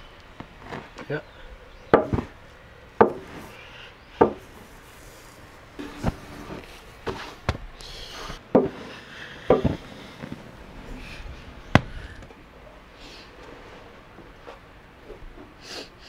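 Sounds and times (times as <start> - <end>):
hand tools knocking on wood: 4.2 - 4.4, 8.5 - 8.8, 9.5 - 9.8.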